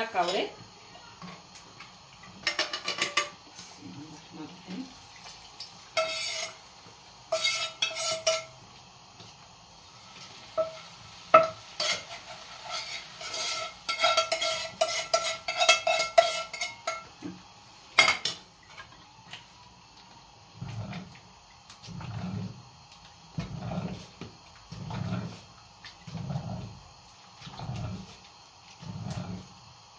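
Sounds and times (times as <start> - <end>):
metal spoon scraping pans: 2.4 - 3.4, 6.0 - 6.6, 7.3 - 8.6, 10.5 - 17.1.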